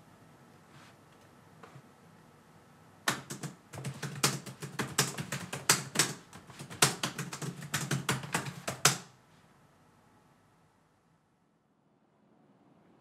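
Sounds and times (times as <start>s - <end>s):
rapid typing on keys: 3.1s - 9.1s.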